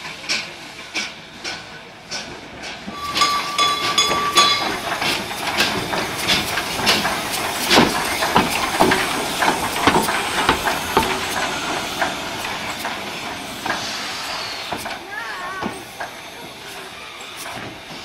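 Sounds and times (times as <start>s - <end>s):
steam locomotive hissing steam: 0.0s - 18.0s
sharp knocks of locomotive: 0.2s - 13.9s.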